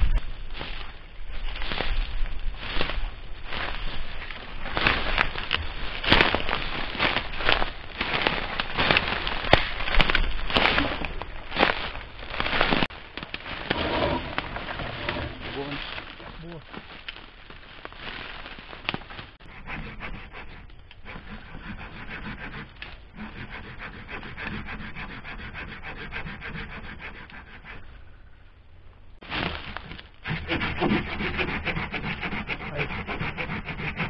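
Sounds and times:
hand saw cutting wood: 0:13.7 - 0:15.8, 0:19.4 - 0:27.9, 0:29.8 - 0:34.0.

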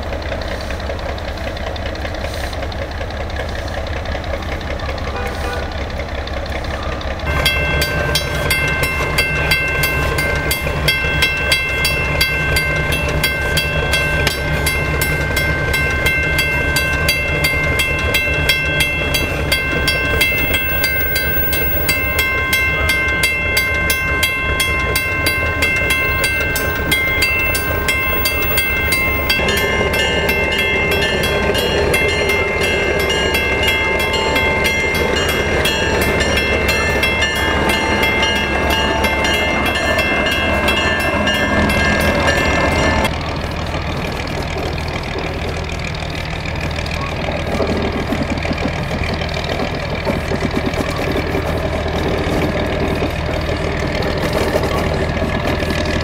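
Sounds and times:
locomotive engine humming: 0:00.0 - 0:56.0
crossing signal bell ringing: 0:07.2 - 0:43.1.

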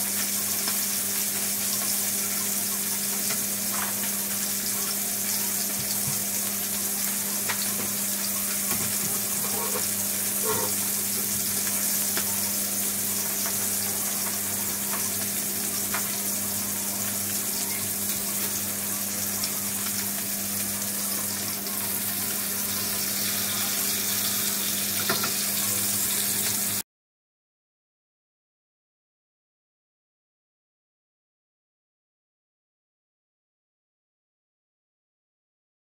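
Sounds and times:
fish sizzling in oil: 0:00.0 - 0:26.8
oil popping and crackling: 0:00.2 - 0:26.8.

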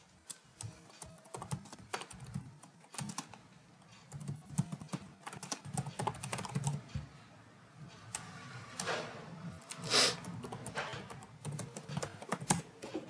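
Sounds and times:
computer keyboard typing: 0:00.2 - 0:07.0, 0:09.6 - 0:12.9.

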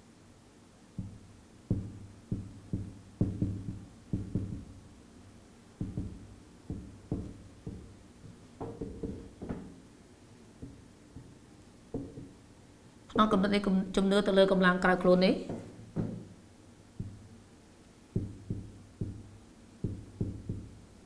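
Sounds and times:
marker tapping on whiteboard: 0:01.0 - 0:04.9, 0:05.8 - 0:09.8, 0:10.6 - 0:12.4, 0:15.5 - 0:16.4, 0:17.0 - 0:17.4, 0:18.1 - 0:20.8.

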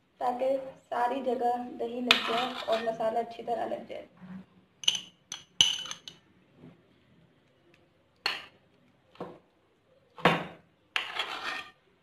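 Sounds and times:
spoon scraping plate: 0:02.1 - 0:03.0, 0:11.0 - 0:11.8
spoon clinking on plate: 0:04.8 - 0:06.2.

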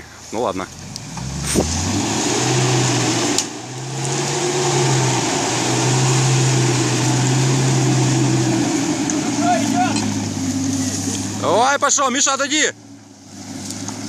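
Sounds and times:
engine revving high: 0:00.8 - 0:11.7.

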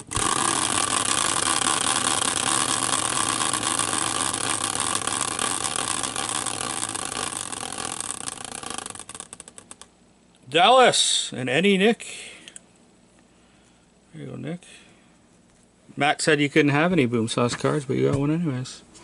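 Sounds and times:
caster wheel whirring on axle: 0:00.0 - 0:09.9
wheel clicking slowly: 0:00.0 - 0:09.9.

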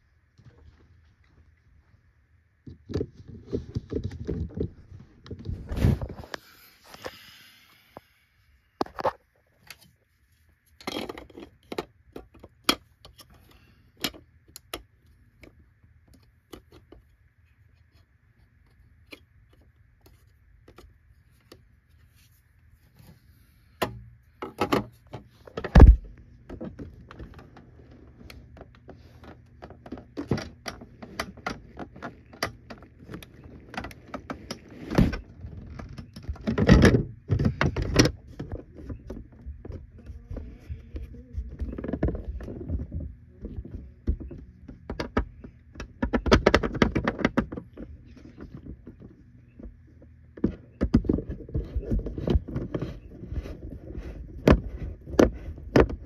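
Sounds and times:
plastic parts clicking and rattling: 0:10.7 - 0:17.2, 0:23.8 - 0:56.0.

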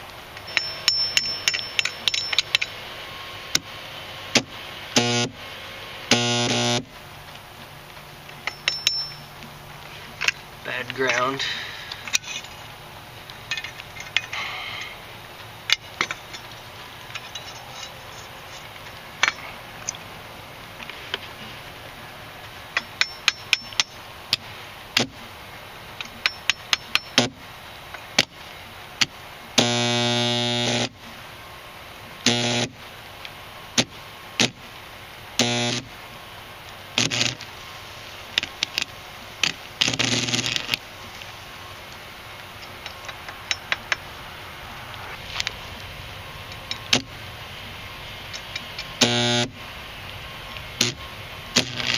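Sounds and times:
welding arc buzzing hum: 0:00.0 - 0:13.5, 0:21.7 - 0:31.0, 0:32.2 - 0:51.9
welding arc snaps and crackles: 0:20.7 - 0:31.1, 0:32.2 - 0:44.2, 0:44.9 - 0:51.9.

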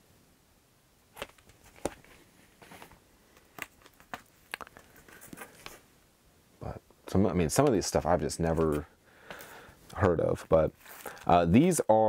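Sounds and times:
cardboard sleeves tapping and rustling: 0:01.1 - 0:05.9.

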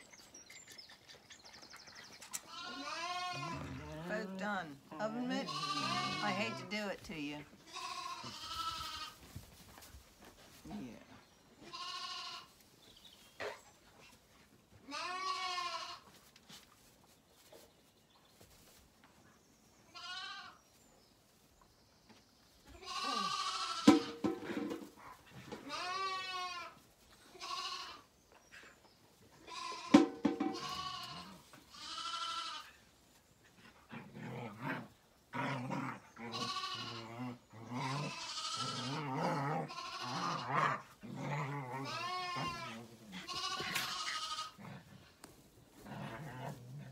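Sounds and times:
lambs bleating: 0:02.4 - 0:04.1, 0:05.0 - 0:06.9, 0:07.6 - 0:09.2, 0:11.6 - 0:12.5, 0:14.8 - 0:16.0, 0:19.9 - 0:20.6, 0:22.8 - 0:24.8, 0:25.6 - 0:28.1, 0:29.4 - 0:32.7, 0:36.2 - 0:44.8
sharp knocks: 0:23.9 - 0:24.8, 0:30.0 - 0:30.6.

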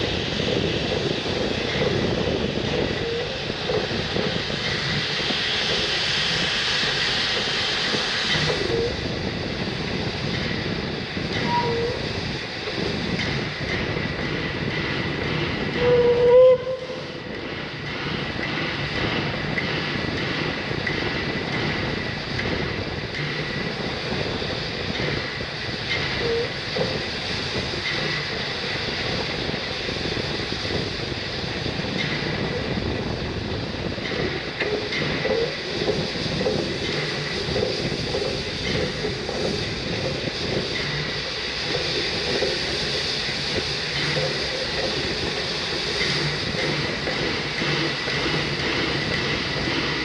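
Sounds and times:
train wheels rumbling on rail: 0:00.0 - 0:50.0
clicking over rail joints: 0:31.9 - 0:50.0.

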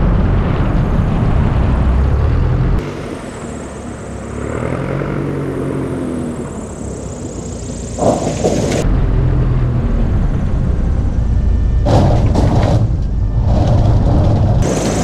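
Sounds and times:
airplane drone descending in pitch: 0:00.0 - 0:07.9, 0:08.8 - 0:15.0
airplane engine rumble: 0:00.0 - 0:15.0
wind buffeting camera: 0:11.8 - 0:15.0.

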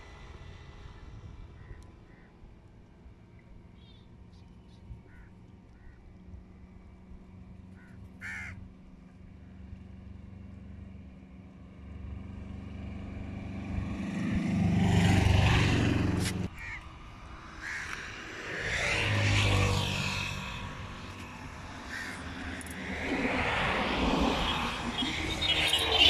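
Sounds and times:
motor vehicles passing by: 0:00.0 - 0:26.0
crow cawing: 0:01.6 - 0:02.3, 0:05.1 - 0:06.0, 0:07.8 - 0:08.6, 0:16.6 - 0:16.8, 0:17.6 - 0:18.0, 0:21.8 - 0:22.5.

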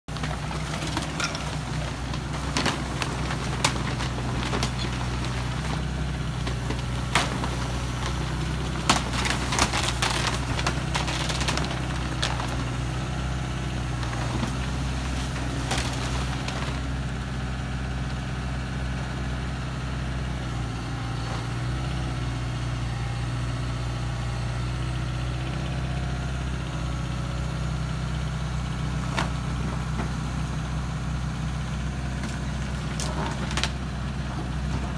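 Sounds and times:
sharp knocks and crackles: 0:00.1 - 0:12.7
excavator diesel engine running: 0:00.1 - 0:34.9.

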